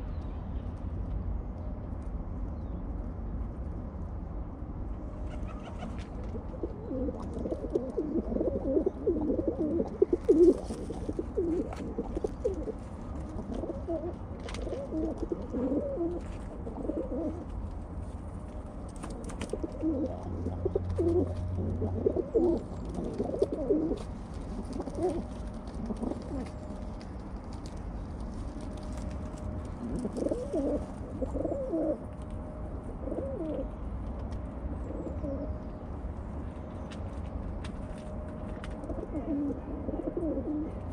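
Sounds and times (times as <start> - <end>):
pigeons cooing: 5.2 - 17.5, 19.0 - 26.9, 29.6 - 32.1, 32.8 - 33.8, 34.8 - 35.6, 38.8 - 40.9.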